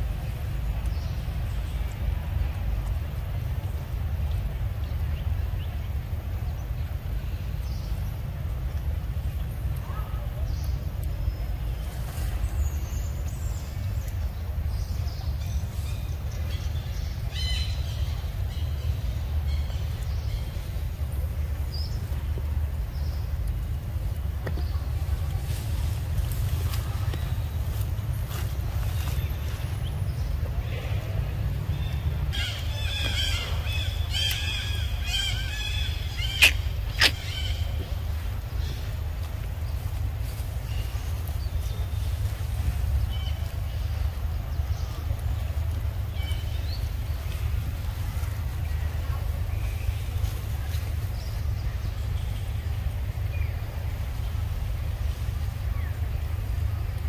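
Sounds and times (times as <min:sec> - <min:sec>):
steady low rumble: 0:00.0 - 0:57.0
high chirping animal cries: 0:32.4 - 0:37.6.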